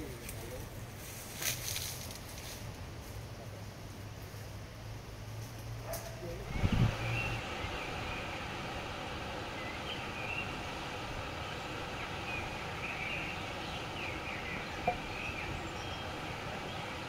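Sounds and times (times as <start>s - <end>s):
outdoor background noise: 0.0s - 17.0s
faint bird chirps: 6.4s - 17.0s.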